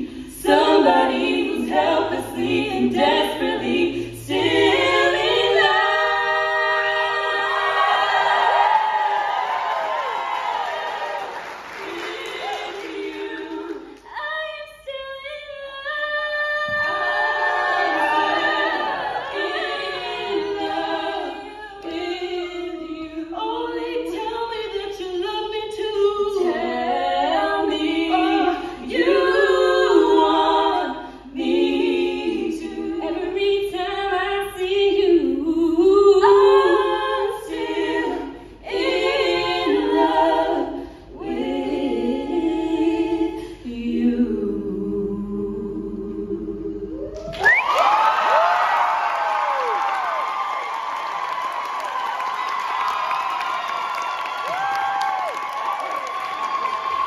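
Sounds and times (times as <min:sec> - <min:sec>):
women singing a cappella harmony: 0:00.0 - 0:09.7, 0:11.8 - 0:47.4.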